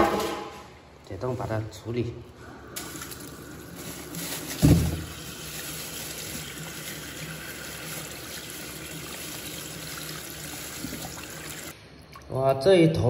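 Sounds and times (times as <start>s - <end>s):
tap water running into sink: 2.8s - 11.7s.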